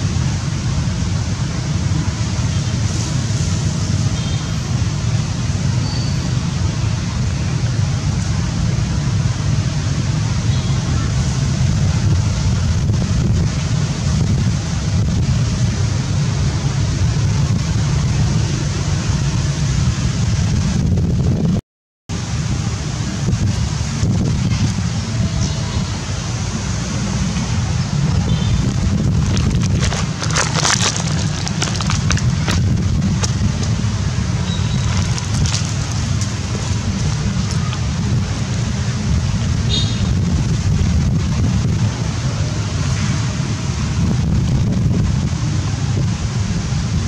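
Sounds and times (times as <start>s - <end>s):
wind buffeting microphone: 11.5s - 16.1s, 19.8s - 21.6s, 27.6s - 42.1s, 43.9s - 47.0s
low outdoor rumble: 22.2s - 42.6s.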